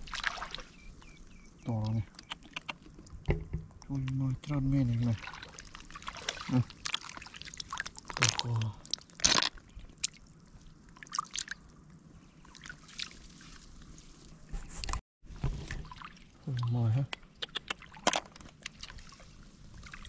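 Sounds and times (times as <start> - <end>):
hands sloshing in water and mud: 0.0 - 0.8, 4.9 - 14.4, 17.7 - 20.0
small splashes and drips: 0.0 - 0.8, 4.9 - 14.4, 15.6 - 20.0.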